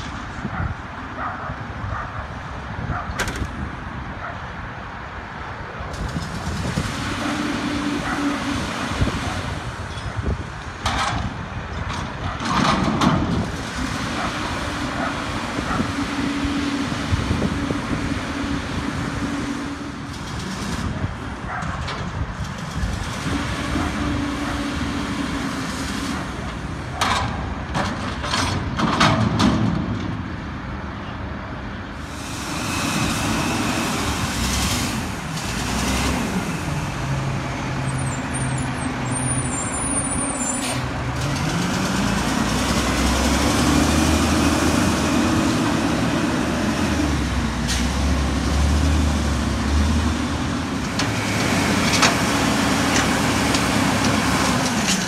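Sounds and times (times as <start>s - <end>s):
garbage truck engine revving: 32.0s - 55.0s.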